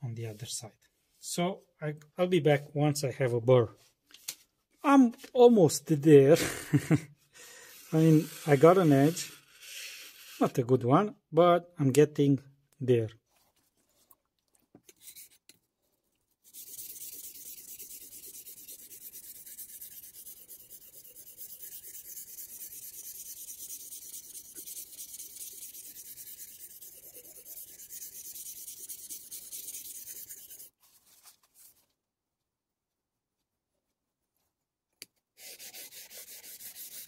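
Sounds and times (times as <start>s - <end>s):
knife scraping on whetstone: 16.5s - 30.7s.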